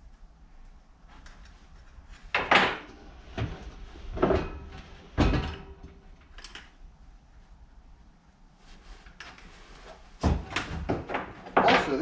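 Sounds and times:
wheel knocks and clunks: 2.3 - 6.2, 10.2 - 12.0.

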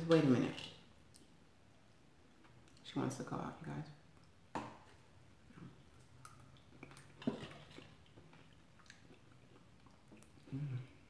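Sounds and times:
person chewing soup: 4.1 - 11.0.

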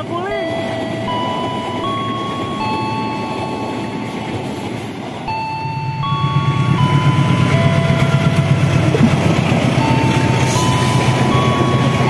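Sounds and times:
diesel locomotive rumble: 0.0 - 12.0
passing train rumble: 0.0 - 12.0
electronic tone melody: 0.4 - 12.0.

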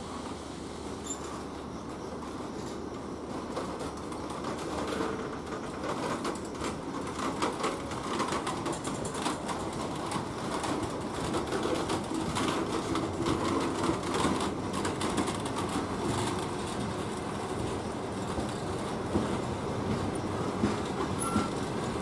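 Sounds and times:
train coaches rolling past: 0.0 - 22.0
wheels clicking and rattling on rails: 0.0 - 22.0.

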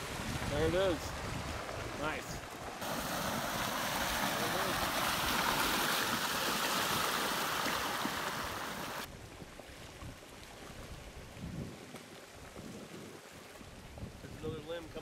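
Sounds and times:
flood water rushing: 0.0 - 9.1
dull debris flow: 0.0 - 15.0.

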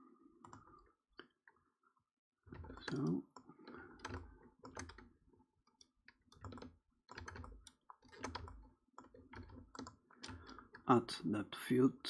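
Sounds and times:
keyboard and mouse clicking: 2.5 - 5.1, 5.7 - 10.8.

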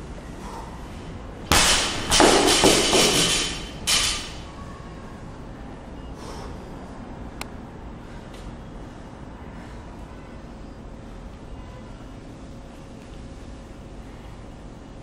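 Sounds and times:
barbell crashing onto wooden platform: 1.5 - 4.4
weight plates bouncing and rattling: 1.5 - 4.5.

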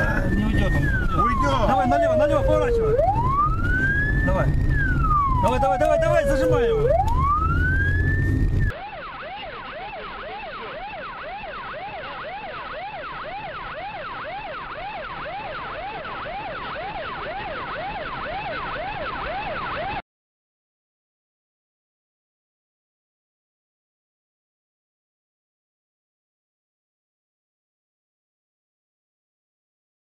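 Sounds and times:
police siren wailing and yelping: 0.0 - 20.0.

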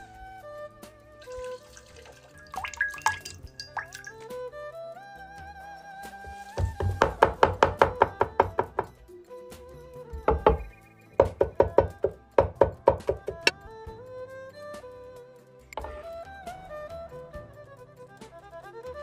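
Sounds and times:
background music: 0.0 - 19.0
cleaver chopping on wooden board: 6.6 - 8.9.

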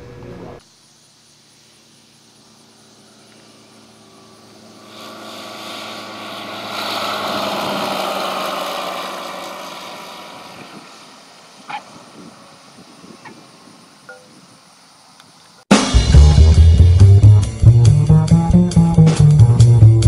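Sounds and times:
propeller aircraft flying past: 1.8 - 12.7.

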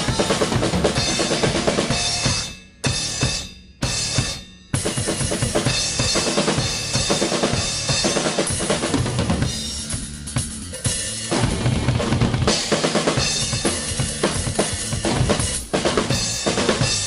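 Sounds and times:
ringing drum hit: 0.0 - 8.6
rock drum beat: 0.0 - 17.0.

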